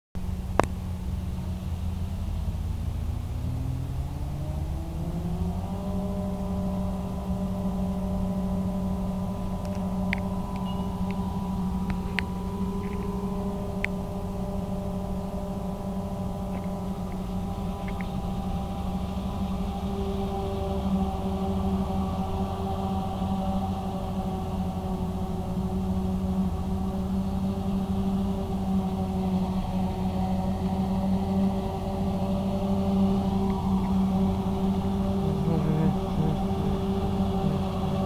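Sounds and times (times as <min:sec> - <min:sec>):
harvester whining drone: 0:00.2 - 0:38.0
faint ticks: 0:09.6 - 0:11.2, 0:16.5 - 0:18.2.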